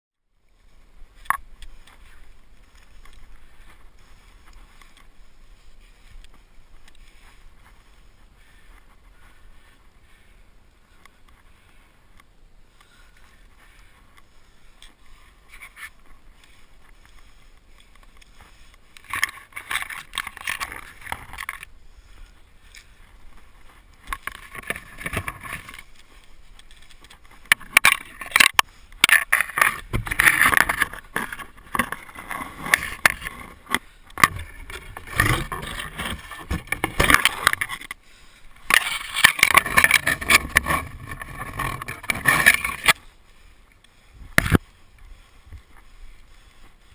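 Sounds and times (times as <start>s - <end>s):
scraping and rustling against bark: 0.6s - 46.9s.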